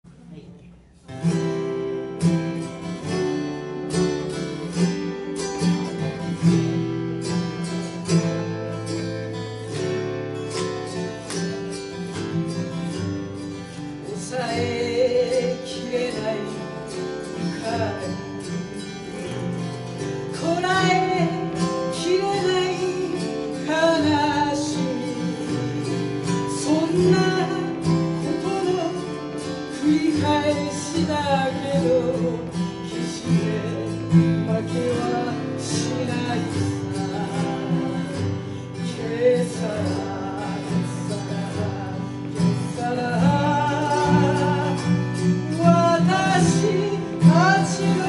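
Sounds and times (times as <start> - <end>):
acoustic guitar chords: 0.0 - 48.0
woman singing: 14.0 - 18.2, 20.3 - 48.0.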